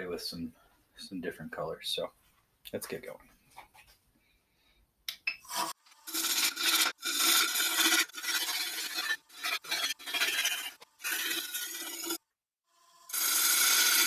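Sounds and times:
lathe gouge scraping wood: 0:05.5 - 0:12.2, 0:12.9 - 0:14.0.

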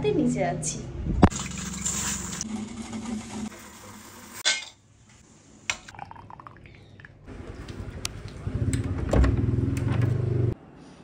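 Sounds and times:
steel kitchenware clinking: 0:04.4 - 0:04.8.

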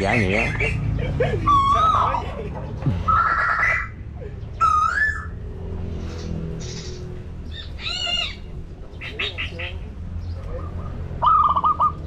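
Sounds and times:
birds whistling calls: 0:00.1 - 0:02.3, 0:02.9 - 0:12.0.

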